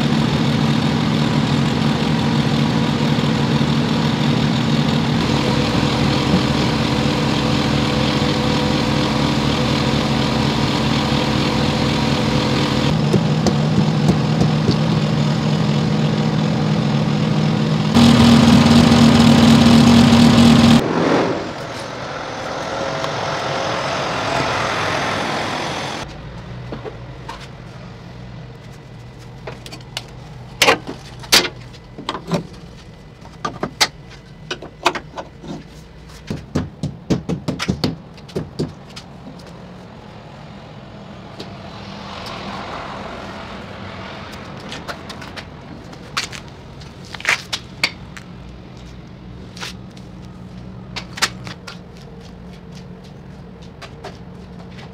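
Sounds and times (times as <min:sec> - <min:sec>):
diesel truck engine idling: 0:00.0 - 0:20.8.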